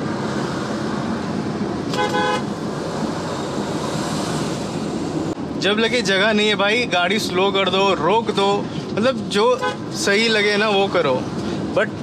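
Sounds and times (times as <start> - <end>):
road and engine noise in car: 0.0 - 12.0
car horn honk: 1.9 - 2.5.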